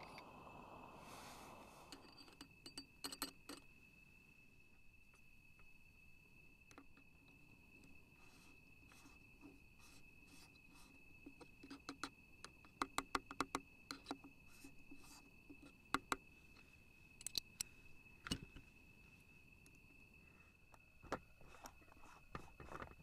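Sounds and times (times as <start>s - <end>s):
high insect trill: 0.0s - 23.0s
metal tool clicking on metal table: 2.0s - 3.6s.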